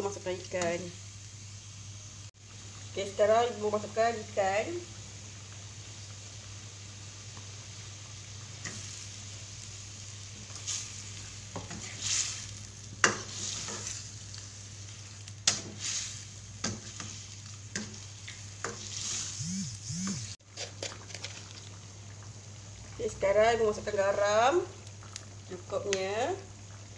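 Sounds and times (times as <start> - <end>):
curry simmering hiss: 0.0 - 19.8, 20.4 - 26.9.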